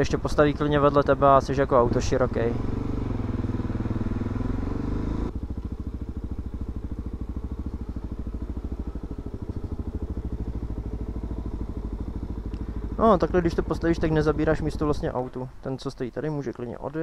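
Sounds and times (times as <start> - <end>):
motorcycle engine idling: 0.0 - 17.0
motorcycle moving in traffic: 0.0 - 17.0.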